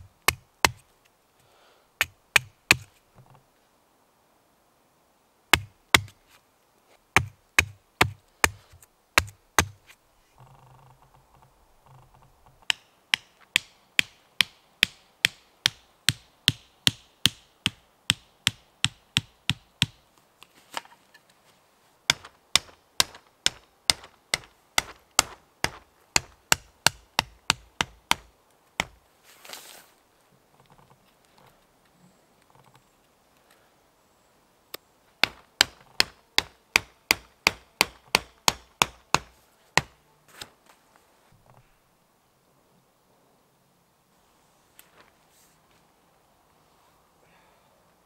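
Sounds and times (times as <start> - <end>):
hammering wooden tent stakes: 0.0 - 0.9, 2.0 - 3.0, 5.5 - 6.2, 7.1 - 10.0, 12.5 - 20.0, 22.1 - 29.0, 35.2 - 40.0.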